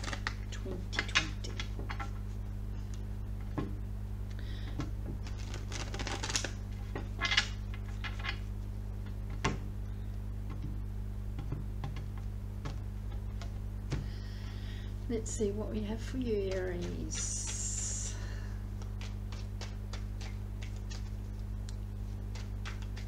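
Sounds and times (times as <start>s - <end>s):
cards being shuffled: 0.0s - 3.6s, 4.8s - 9.6s, 16.5s - 17.8s, 18.7s - 23.0s
steady low hum: 0.0s - 23.0s.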